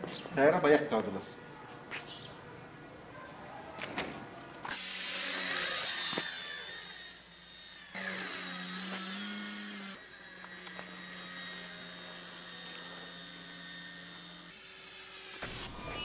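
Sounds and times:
model airplane motor whining: 4.7s - 16.0s.

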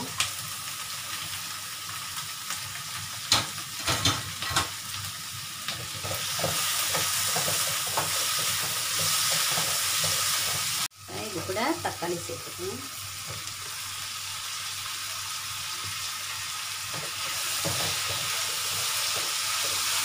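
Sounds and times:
vegetables sizzling in oil: 0.0s - 20.0s
spatula stirring in a wok: 5.7s - 10.9s, 16.8s - 20.0s.

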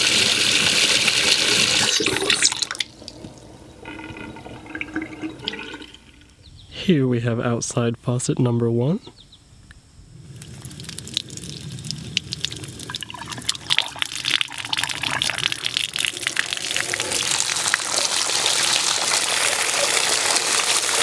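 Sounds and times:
water splashing onto ground: 10.4s - 21.0s.

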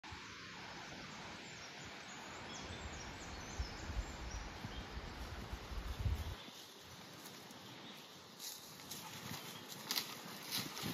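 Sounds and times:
wind in palm leaves: 0.1s - 10.9s
wind rumble on microphone: 2.7s - 6.4s.

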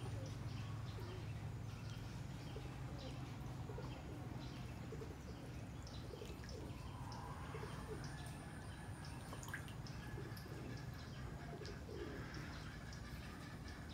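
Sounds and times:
bird calls: 0.0s - 13.9s
water dripping and splashing: 5.4s - 8.4s, 9.0s - 10.8s.

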